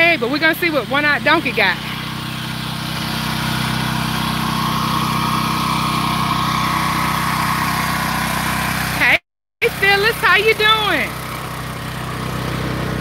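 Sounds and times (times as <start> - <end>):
engine drone: 0.0 - 13.0
high whining tone: 1.4 - 8.7.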